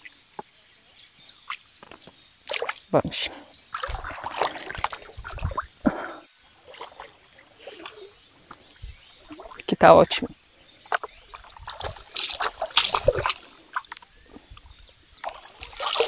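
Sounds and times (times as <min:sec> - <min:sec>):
feet splashing through water: 0:02.4 - 0:09.8, 0:10.8 - 0:16.0.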